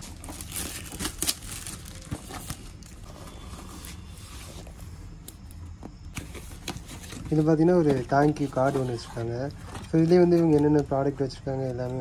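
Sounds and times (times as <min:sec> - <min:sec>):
plastic packaging crinkling: 0:00.0 - 0:04.6, 0:06.8 - 0:12.0
cardboard box being opened: 0:00.0 - 0:04.8, 0:06.2 - 0:10.8.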